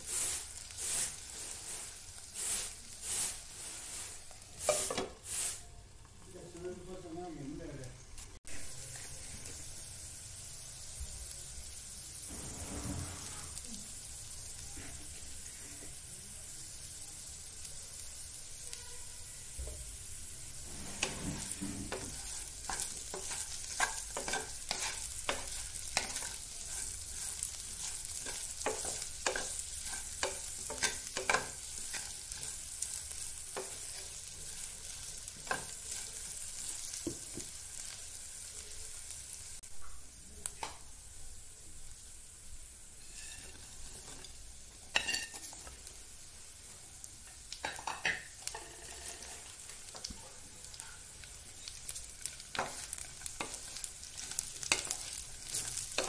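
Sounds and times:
wooden spatula scraping a pan: 0:00.0 - 0:05.6, 0:12.2 - 0:13.7, 0:20.5 - 0:37.5, 0:43.0 - 0:45.8, 0:47.6 - 0:50.0
potatoes sizzling in oil: 0:00.0 - 0:56.0.

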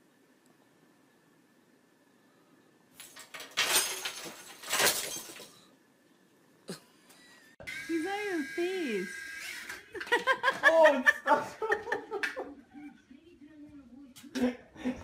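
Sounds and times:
tree and ornaments crashing: 0:03.0 - 0:05.7.

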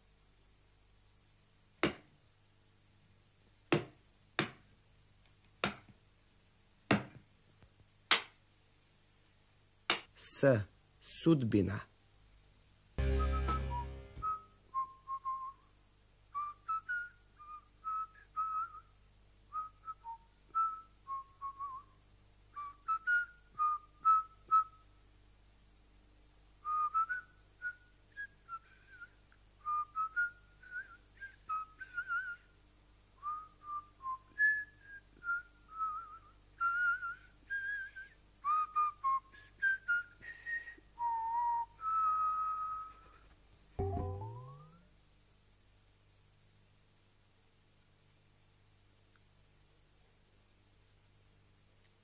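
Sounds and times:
person whistling a tune: 0:13.0 - 0:15.6, 0:16.4 - 0:18.8, 0:26.7 - 0:32.5, 0:33.2 - 0:43.2, 0:43.8 - 0:44.8.

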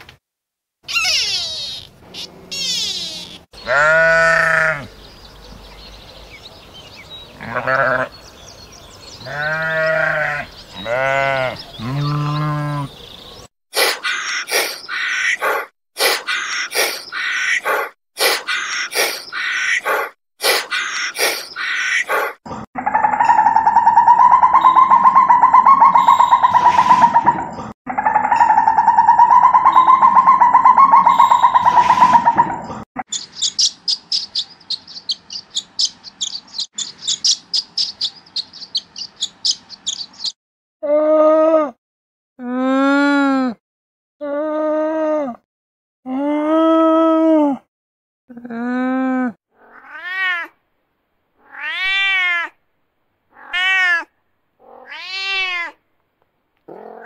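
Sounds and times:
short bird calls: 0:00.9 - 0:04.8, 0:23.2 - 0:27.4, 0:28.4 - 0:40.4
camel calling: 0:00.9 - 0:04.9, 0:07.4 - 0:08.1, 0:09.2 - 0:13.0
sheep bleating: 0:03.6 - 0:04.9, 0:07.4 - 0:08.2, 0:09.2 - 0:12.9
barn swallow twittering: 0:28.4 - 0:40.4.

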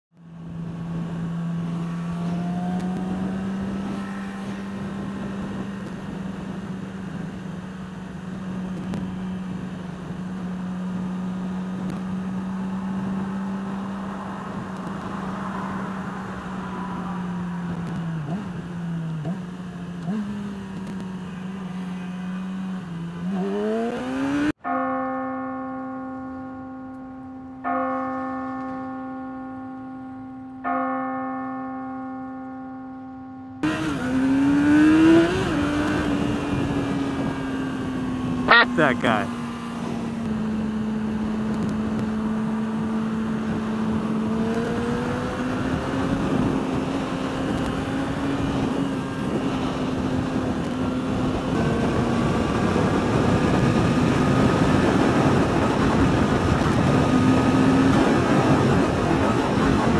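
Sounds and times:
motorcycle engine accelerating: 0:00.2 - 0:24.7, 0:33.0 - 0:59.9
rushing wind: 0:00.4 - 0:19.1, 0:33.6 - 0:59.9.

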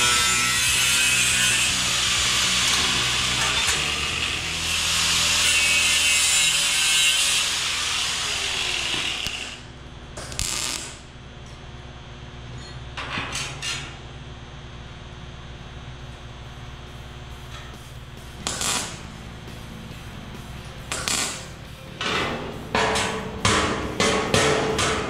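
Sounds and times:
angle grinder grinding metal: 0:00.0 - 0:09.7.

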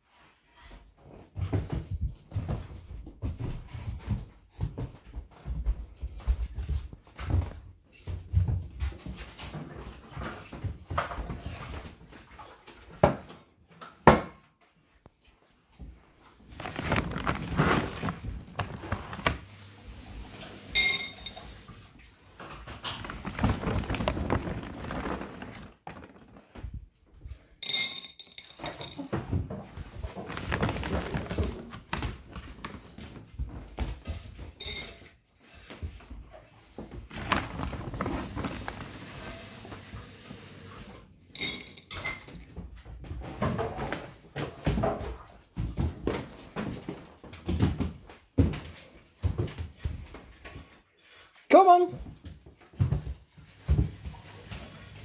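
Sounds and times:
plastic sack rustling: 0:16.3 - 0:20.8, 0:22.7 - 0:26.9, 0:30.0 - 0:33.2, 0:37.0 - 0:40.6.

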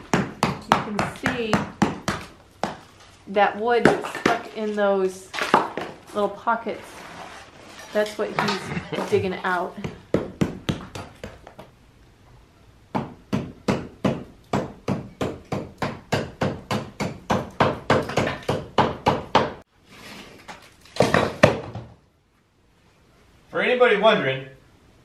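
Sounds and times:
hammer striking brickwork: 0:00.0 - 0:02.8, 0:08.4 - 0:11.6, 0:12.9 - 0:19.6.

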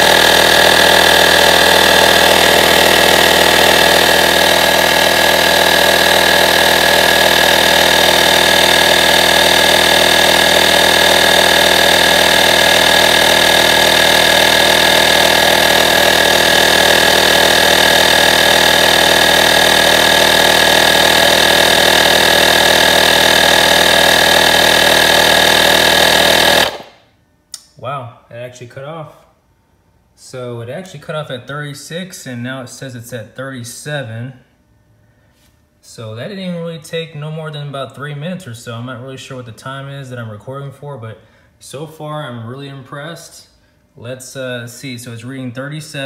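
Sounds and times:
electric air compressor running: 0:00.0 - 0:27.2.

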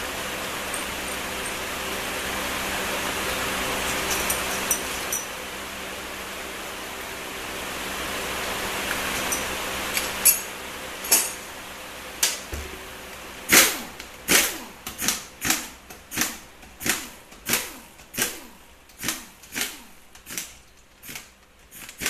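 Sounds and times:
pneumatic wrench bursts: 0:13.5 - 0:22.0.

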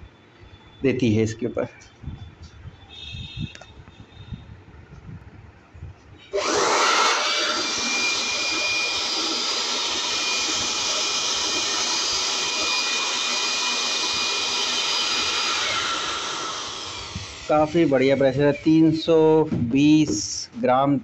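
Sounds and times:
electric blower whine and air rush: 0:06.2 - 0:20.2.

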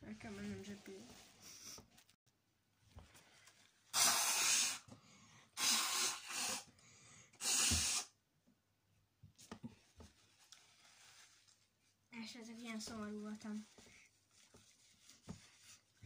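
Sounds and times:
person blowing nose: 0:03.9 - 0:04.9, 0:05.6 - 0:06.7, 0:07.4 - 0:08.2.

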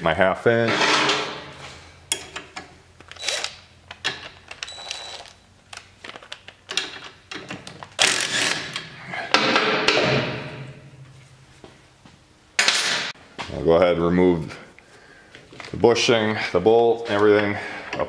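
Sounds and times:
tools and sockets clinking: 0:02.1 - 0:07.8
impact driver loosening bolts: 0:03.0 - 0:05.2, 0:06.7 - 0:08.9.

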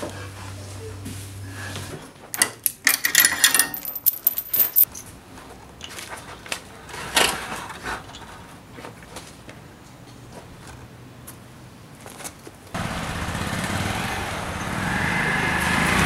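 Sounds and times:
metal chain rattling: 0:02.3 - 0:05.1.

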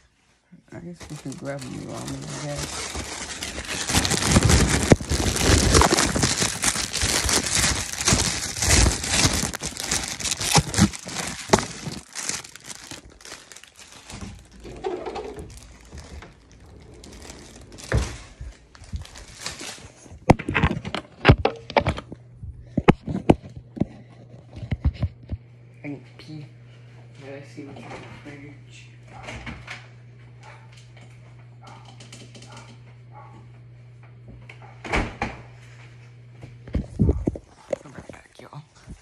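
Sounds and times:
crinkling and rustling: 0:00.7 - 0:25.4, 0:36.6 - 0:39.0.

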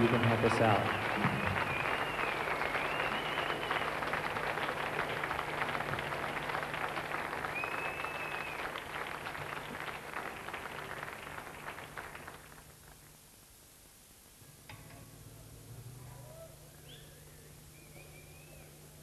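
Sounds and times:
audience applauding: 0:00.0 - 0:13.1
long whistle: 0:00.9 - 0:03.9, 0:07.5 - 0:08.7, 0:16.8 - 0:18.7.

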